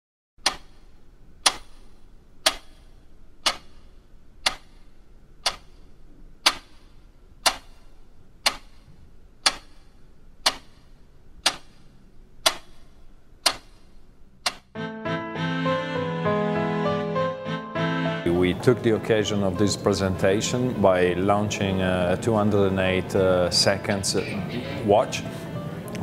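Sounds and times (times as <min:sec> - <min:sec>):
clock ticking: 0:00.4 - 0:14.8.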